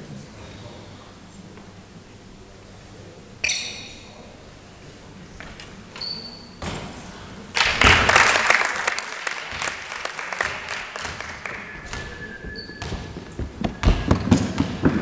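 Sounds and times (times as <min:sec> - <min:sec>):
spectators clapping: 0:07.5 - 0:13.5.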